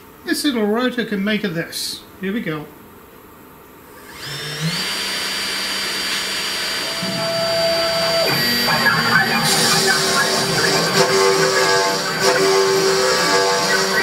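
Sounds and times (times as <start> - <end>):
spindle motor high whine: 3.9 - 14.0
router bit cutting wood: 4.0 - 14.0
low motor hum: 6.8 - 14.0.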